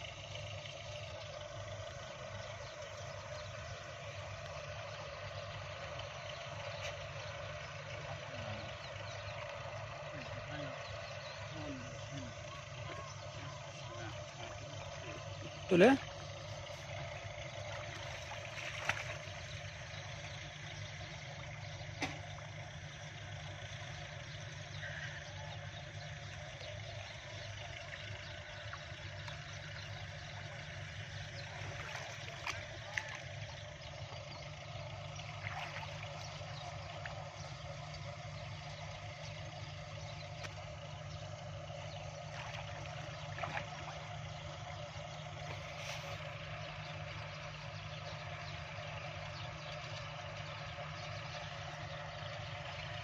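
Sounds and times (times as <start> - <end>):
low engine hum: 0.0 - 53.0
water sloshing and splashing: 9.3 - 23.2, 26.2 - 47.7.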